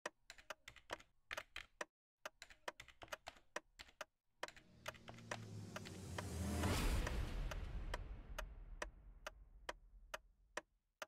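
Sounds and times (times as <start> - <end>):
keyboard typing clicks: 0.0 - 5.9
swell of noise: 5.0 - 8.4.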